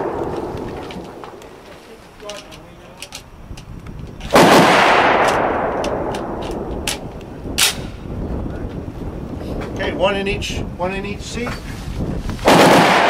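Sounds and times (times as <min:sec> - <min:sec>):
sharp crack: 0:00.0 - 0:03.2, 0:04.2 - 0:08.0, 0:12.4 - 0:13.0
rifle shot: 0:04.3 - 0:08.0, 0:12.4 - 0:13.0.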